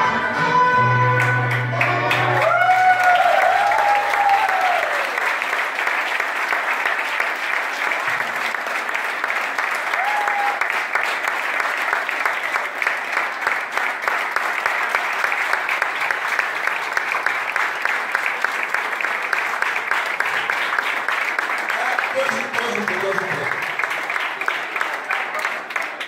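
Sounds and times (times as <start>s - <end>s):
dance music: 0.0s - 2.4s
audience applauding: 1.1s - 26.0s
shouted cheers: 1.2s - 5.4s, 9.8s - 10.9s, 21.7s - 23.5s.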